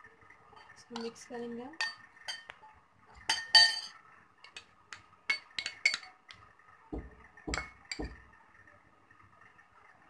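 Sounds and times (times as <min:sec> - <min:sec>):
spoon clinking against glass bowl: 0:01.8 - 0:02.5, 0:03.3 - 0:04.6, 0:05.3 - 0:06.2.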